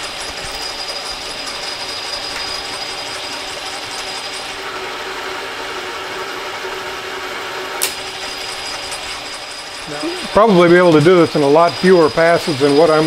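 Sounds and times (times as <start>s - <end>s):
metal lathe whirring: 0.0s - 13.0s
sharp click: 7.8s - 8.0s.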